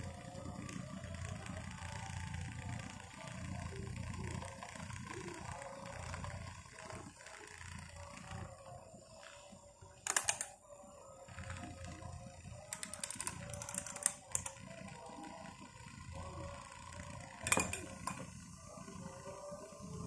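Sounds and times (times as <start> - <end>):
toy fans whirring: 0.0 - 20.0
plastic clacks: 10.1 - 10.6, 17.4 - 18.3.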